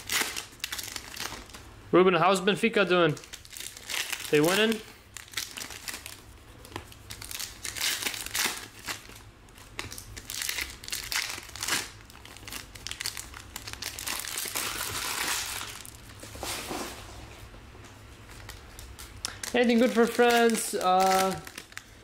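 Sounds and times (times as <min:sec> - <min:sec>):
cards rustling: 0:03.1 - 0:16.7, 0:18.2 - 0:22.0.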